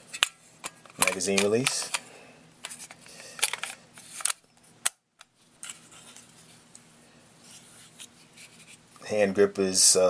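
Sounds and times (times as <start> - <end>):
light handling noises: 0.1 - 4.4.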